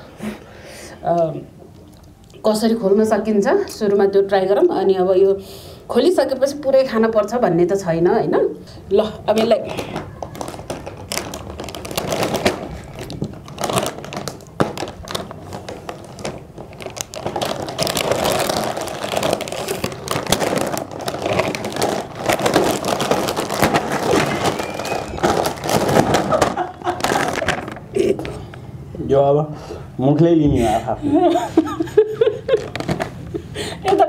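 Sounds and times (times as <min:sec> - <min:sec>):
plastic snack packets crinkling: 0:09.3 - 0:28.3, 0:32.5 - 0:34.0.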